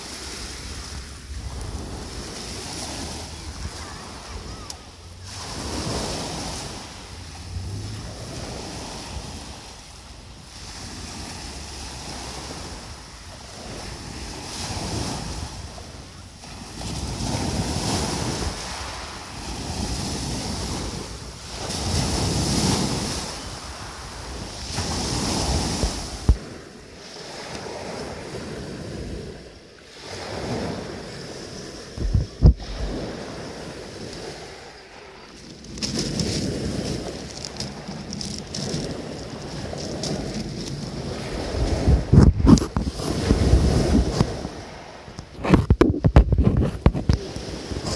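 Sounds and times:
wind buffeting microphone: 0.0s - 26.6s, 30.0s - 34.8s, 35.4s - 47.9s
sea surf: 0.0s - 47.9s
short low bumps: 32.0s - 32.9s.

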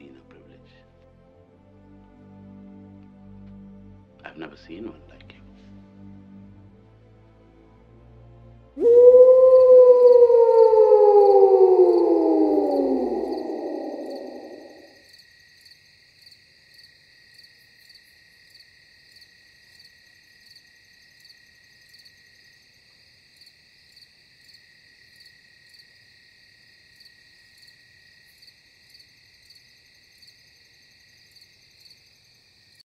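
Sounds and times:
insect chirps: 8.8s - 32.8s
night insects trilling: 8.8s - 32.8s.

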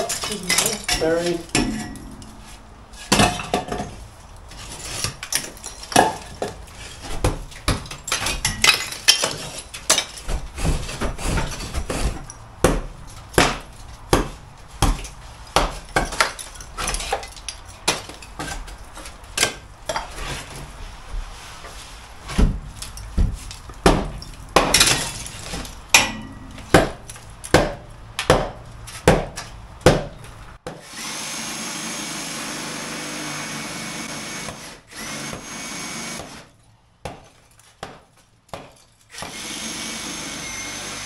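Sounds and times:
concrete pieces knocking and clinking: 0.0s - 20.2s, 22.8s - 27.6s.

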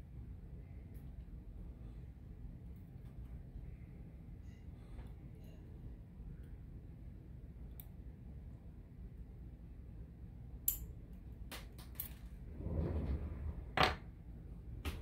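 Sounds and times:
low rumbling handling noise: 12.1s - 15.0s.

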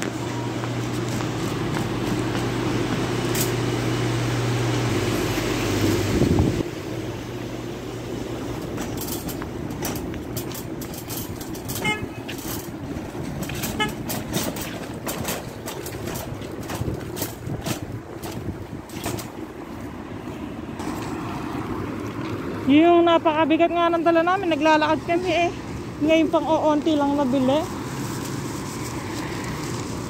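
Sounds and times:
steady low hum: 0.0s - 21.0s
shopping cart rolling and rattling: 0.8s - 3.7s, 8.3s - 19.5s
car horn toots: 11.6s - 12.2s, 13.6s - 14.1s.

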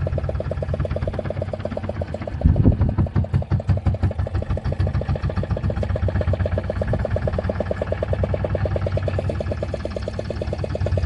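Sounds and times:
boat engine chugging at idle: 0.0s - 11.0s.

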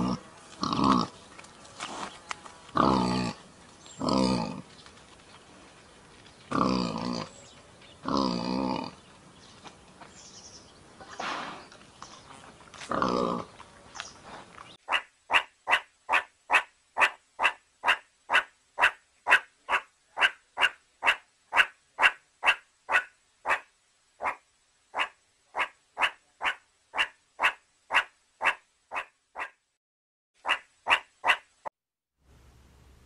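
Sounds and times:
meerkat barking calls: 14.8s - 29.6s, 30.4s - 31.5s.

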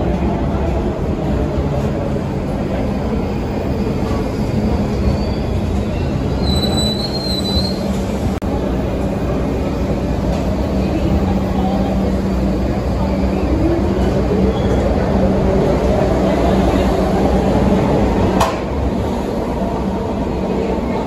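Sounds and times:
subway train rumbling: 0.0s - 21.0s
wheel and brake squeal: 4.8s - 8.0s.

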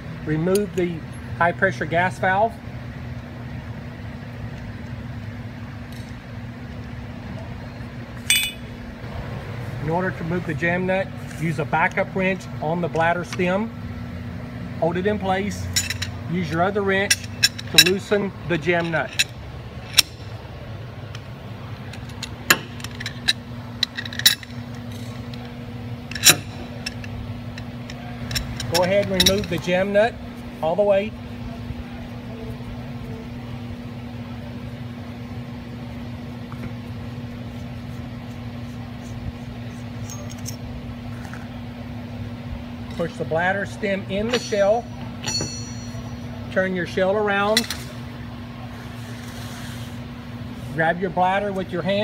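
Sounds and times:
steady low hum: 0.0s - 52.0s
metal tool clinking on bench: 8.2s - 8.7s, 15.7s - 16.2s, 44.2s - 46.3s
wrenches clinking on metal: 15.4s - 20.3s, 21.8s - 30.0s, 40.0s - 40.7s, 42.9s - 47.9s.

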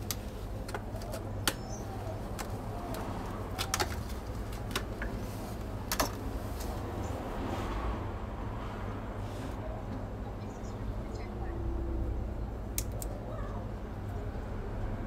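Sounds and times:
plastic packets rustling: 0.0s - 6.7s.

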